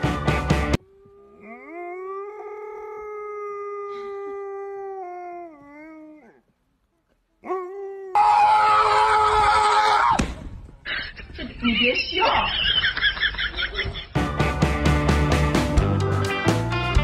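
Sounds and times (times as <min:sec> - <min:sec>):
dog howling: 0:00.8 - 0:06.5, 0:07.4 - 0:10.1.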